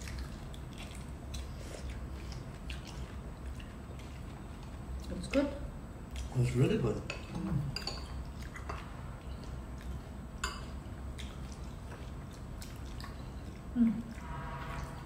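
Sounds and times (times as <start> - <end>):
wet chewing and slurping: 0.0 - 5.4, 7.2 - 14.3
steady low hum: 0.0 - 15.0
person humming mm: 13.8 - 14.3.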